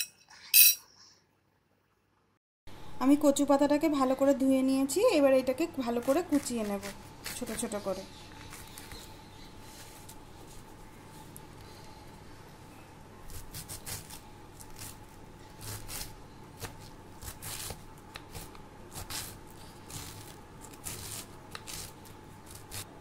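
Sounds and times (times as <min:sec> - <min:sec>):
knife slicing leaves on wooden board: 0:15.6 - 0:22.9.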